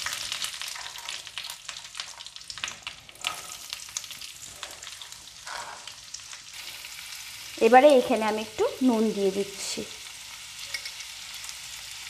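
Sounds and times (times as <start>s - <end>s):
oil sizzling in frying pan: 0.0s - 12.0s
wooden spatula scraping pan: 5.4s - 6.0s.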